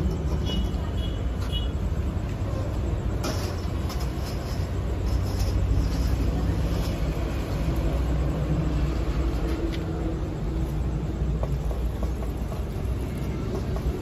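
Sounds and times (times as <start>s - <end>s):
shovel scraping coals on brick: 3.1s - 7.8s.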